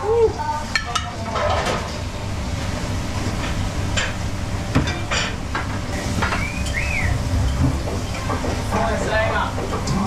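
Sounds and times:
extraction fans rumbling: 0.0s - 10.0s
utensils and plates clattering: 0.7s - 2.0s, 4.8s - 10.0s.

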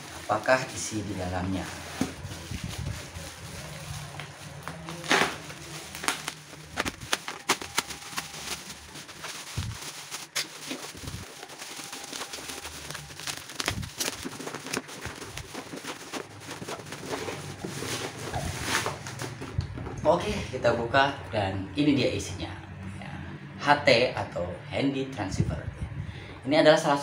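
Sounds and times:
plastic wrapping crinkling: 0.0s - 19.8s.

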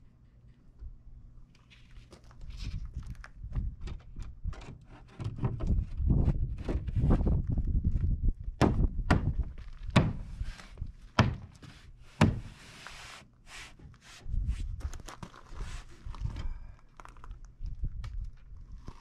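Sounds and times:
rustling scrape: 10.3s - 10.8s, 11.6s - 16.4s
wood panel knocking against wall: 11.2s - 11.5s, 12.2s - 12.5s.

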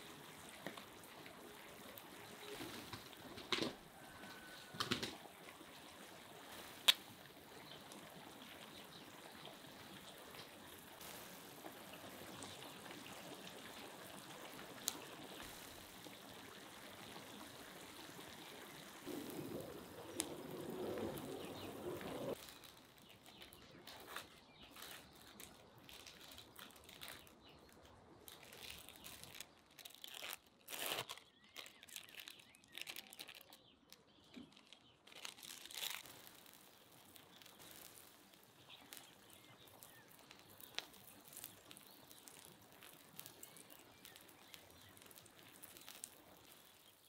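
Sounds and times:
food sizzling in a pan: 11.0s - 13.8s
cheese slices crinkling and tearing: 22.3s - 47.0s.

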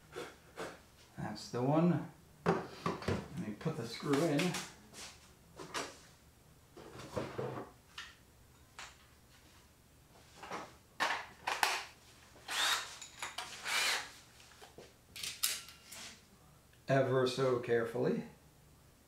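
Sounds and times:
tools clicking and knocking: 12.6s - 13.6s.

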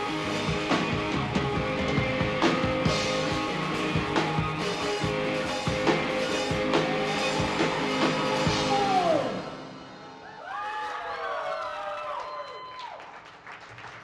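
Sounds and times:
drum and cymbal hits: 0.0s - 10.2s
electric guitar chords: 0.0s - 10.2s.

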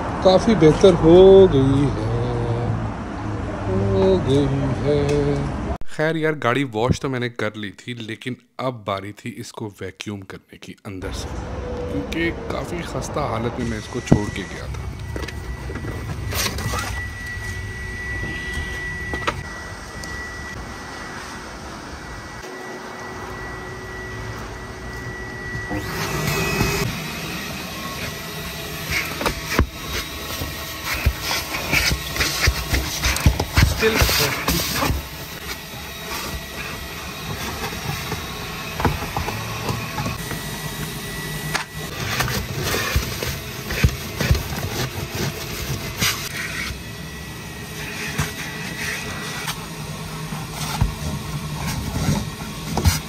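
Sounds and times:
thin high whine: 11.0s - 43.0s.

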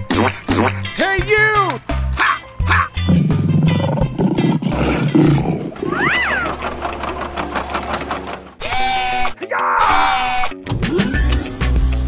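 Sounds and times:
big cat growl: 3.1s - 6.4s.

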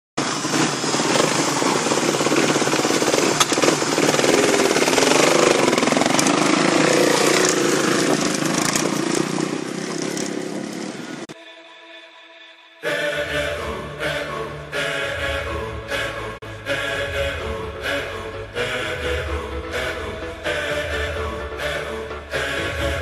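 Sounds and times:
motocross bike engines revving: 0.2s - 11.4s.

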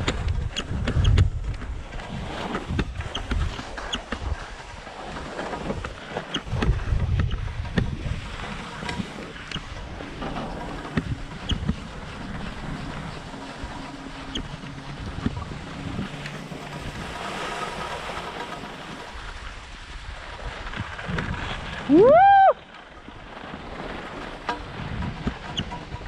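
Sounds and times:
skis sliding over snow: 0.0s - 26.0s
wind on microphone: 0.0s - 26.0s
person yelling: 21.9s - 22.6s.

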